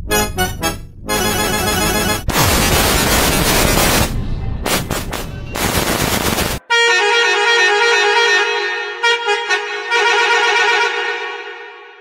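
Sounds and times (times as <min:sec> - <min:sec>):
harsh noisy horn burst: 0:01.1 - 0:04.1
long steady bus horn blast: 0:06.7 - 0:12.0.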